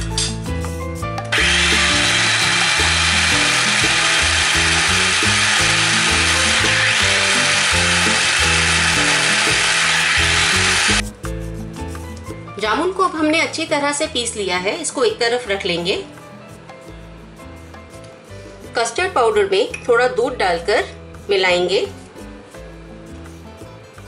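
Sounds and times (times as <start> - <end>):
background music: 0.0 - 24.0
electric chopper grinding: 1.3 - 11.0.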